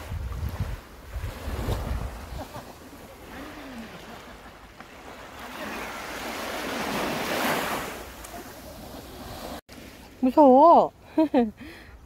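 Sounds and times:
wind rumble on microphone: 0.0 - 2.6
waves lapping on sandy beach: 0.0 - 10.4.

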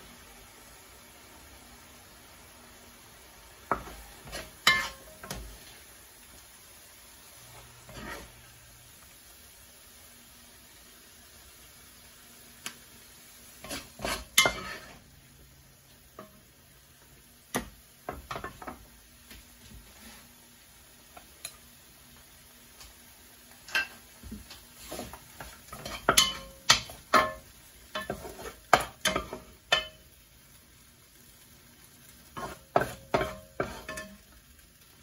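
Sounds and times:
metal utensils scraping a pan: 3.7 - 5.7, 7.6 - 8.5, 13.6 - 15.0, 24.8 - 30.0, 32.3 - 34.2.

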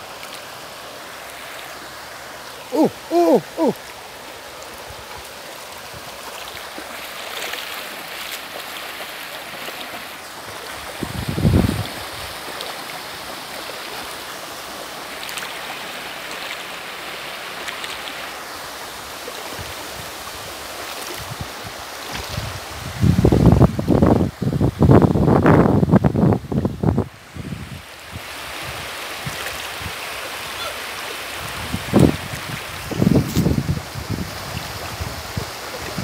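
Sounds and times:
river rushing over stones: 0.0 - 36.0
splashing from wading legs: 3.8 - 11.0
wind rumble on microphone: 10.8 - 12.3, 21.2 - 30.0, 31.4 - 36.0.

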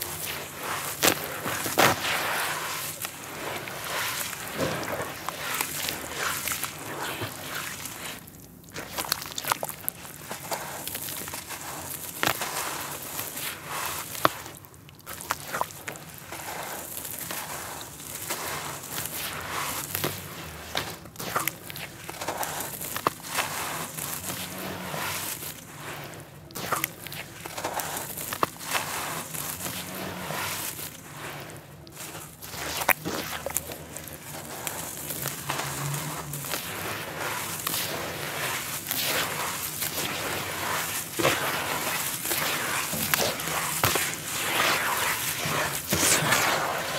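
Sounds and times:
hands squishing wet dirt: 0.0 - 46.9
sharp crackles: 16.9 - 46.9
sharp crunch: 31.9 - 46.9.

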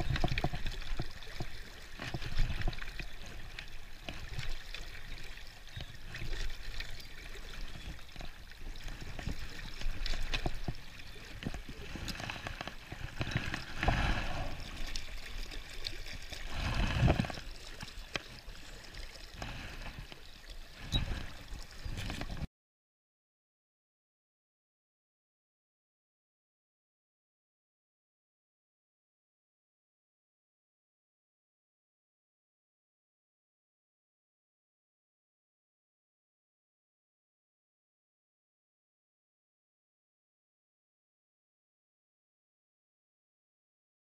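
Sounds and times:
river current rushing and gurgling: 0.0 - 22.5.

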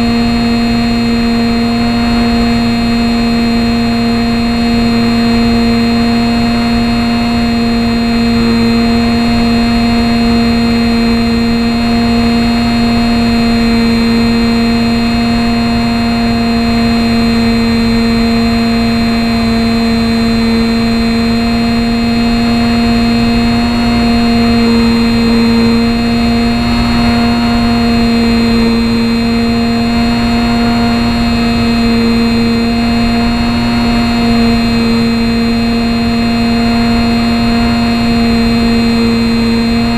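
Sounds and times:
electric motor and propeller buzzing: 0.0 - 39.9.

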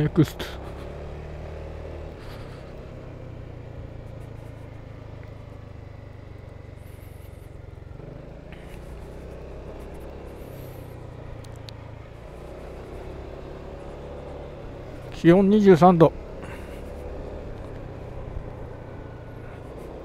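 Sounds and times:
road and wind noise: 0.0 - 20.0
scooter engine running: 0.0 - 20.0.

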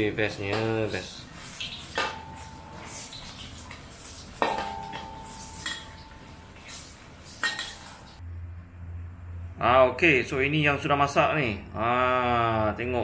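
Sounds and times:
fritters sizzling in oil: 0.0 - 8.2
metal spatula striking wok: 1.7 - 3.5, 4.4 - 8.2.

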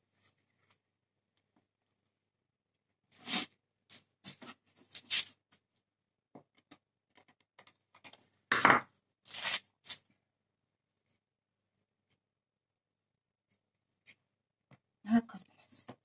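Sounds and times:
paper rustling: 3.2 - 5.4, 9.3 - 10.1.

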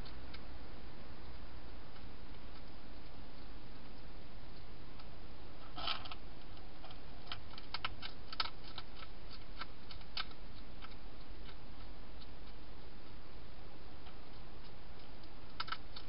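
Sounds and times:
steady low hiss: 0.0 - 16.0
hedgehog crunching dry food: 5.7 - 12.7, 14.0 - 16.0.

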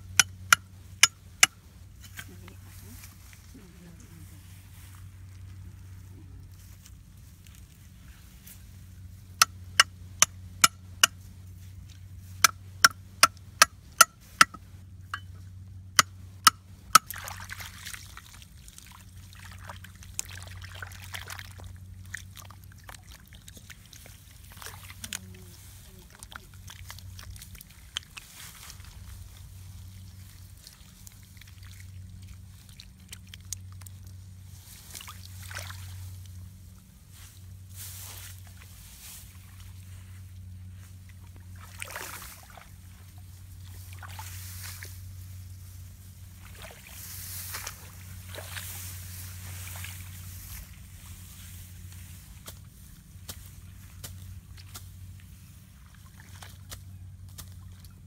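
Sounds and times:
water sloshing and splashing: 16.9 - 36.6, 40.9 - 58.0.

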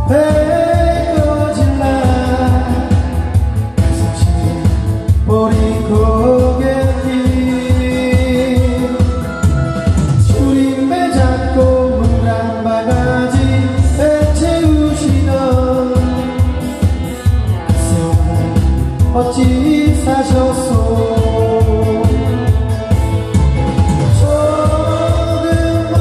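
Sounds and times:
pop song over speakers: 0.0 - 26.0.

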